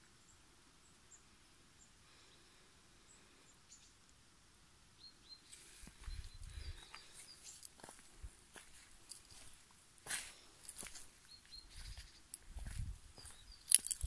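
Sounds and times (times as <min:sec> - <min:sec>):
high bird chirps: 0:05.0 - 0:07.7, 0:11.2 - 0:12.4, 0:13.2 - 0:14.0.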